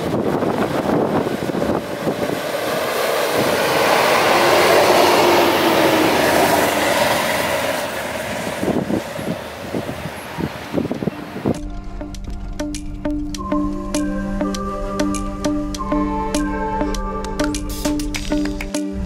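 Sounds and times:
tyres churning through snow: 0:00.0 - 0:11.4
car engine revving: 0:00.8 - 0:09.0.

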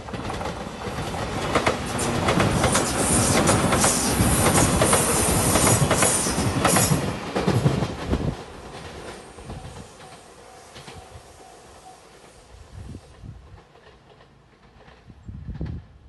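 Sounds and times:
wheels clacking over rail joints: 0:00.0 - 0:11.4
high rushing hiss of train wheels: 0:00.0 - 0:15.1.

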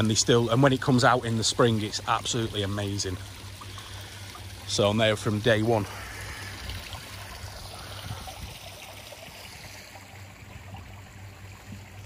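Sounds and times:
water trickling and splashing: 0:00.0 - 0:12.0.

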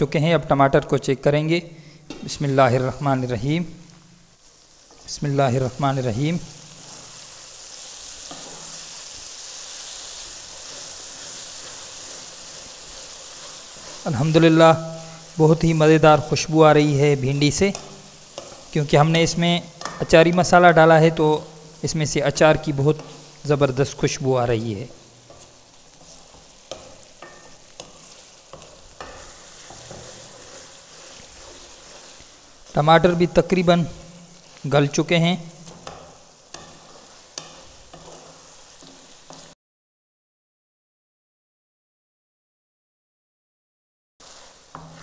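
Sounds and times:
vegetables sizzling in oil: 0:01.7 - 0:39.6, 0:44.2 - 0:45.0
wooden spatula stirring pot: 0:04.8 - 0:39.6, 0:44.2 - 0:45.0
wooden spoon knocking and scraping pot: 0:17.5 - 0:18.8, 0:19.7 - 0:20.5, 0:25.2 - 0:32.3, 0:35.5 - 0:39.5.

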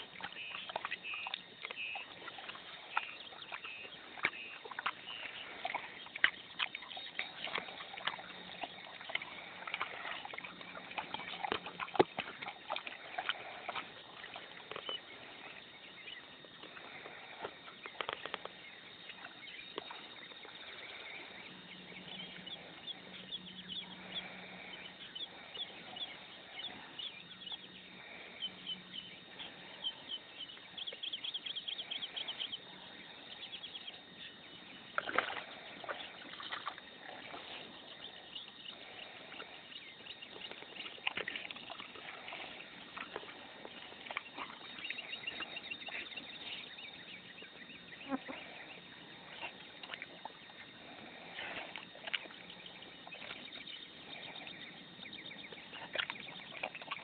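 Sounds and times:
birds chirping: 0:00.0 - 0:57.0
small clicks and rustles: 0:17.4 - 0:18.6.

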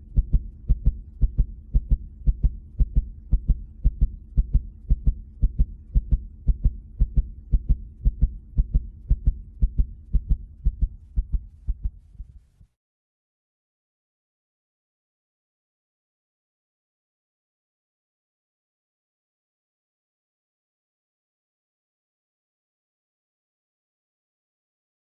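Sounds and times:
heartbeat-like pulse: 0:00.0 - 0:12.7
low steady hum: 0:00.0 - 0:12.7.

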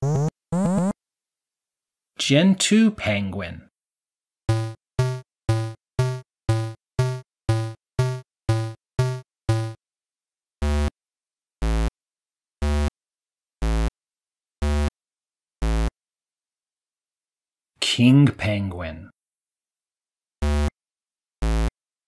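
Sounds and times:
synth notes: 0:04.5 - 0:09.8.

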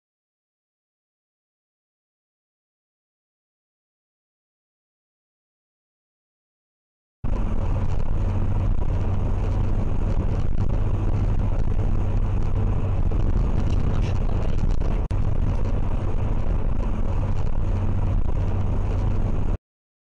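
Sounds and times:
car engine hum: 0:07.2 - 0:19.6.

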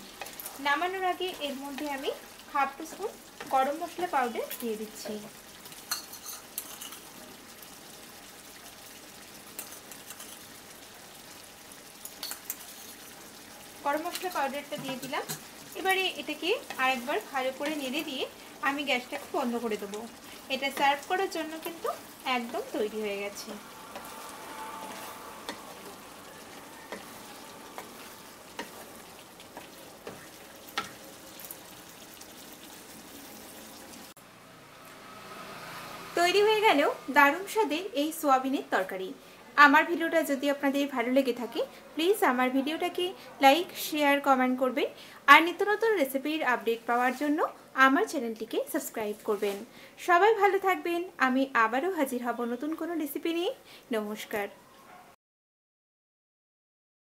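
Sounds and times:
gravy bubbling in a pan: 0:00.0 - 0:37.5
spatula knocking and scraping pan: 0:14.0 - 0:15.5, 0:24.8 - 0:31.1.

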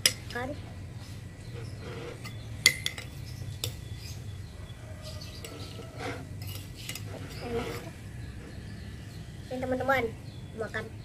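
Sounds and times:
metal spoon scraping glass bowl: 0:01.4 - 0:03.3, 0:05.0 - 0:08.8.

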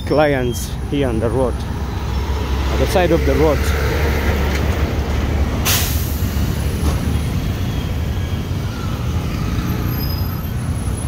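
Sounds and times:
road traffic engine rumble: 0:00.0 - 0:11.0
truck air brake hiss: 0:05.6 - 0:06.6.

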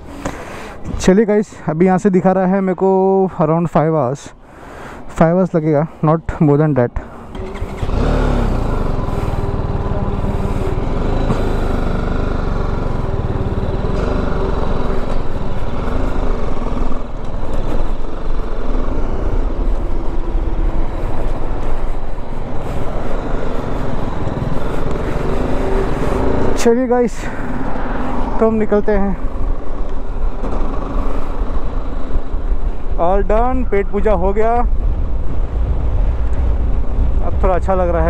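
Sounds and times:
road noise: 0:00.0 - 0:38.0
wind noise: 0:07.1 - 0:26.6, 0:27.3 - 0:38.0
motorcycle engine running: 0:07.2 - 0:26.7.

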